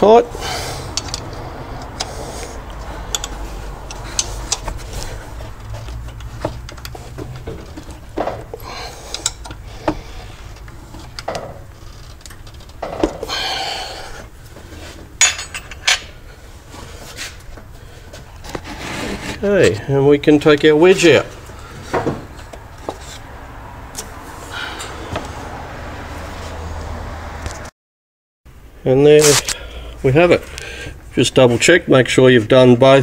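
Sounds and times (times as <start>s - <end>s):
metal tool clinking on bolts: 3.1s - 4.7s, 15.2s - 16.1s.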